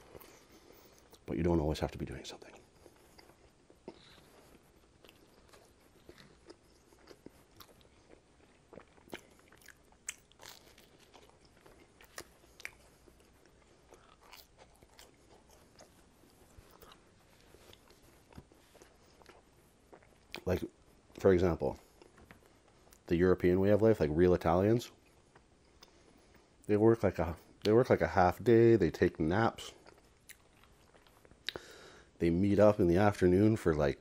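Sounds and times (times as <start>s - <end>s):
chewing bread crust: 0.0s - 23.8s, 24.4s - 27.9s, 28.7s - 32.0s
wet mouth clicks: 31.4s - 31.6s.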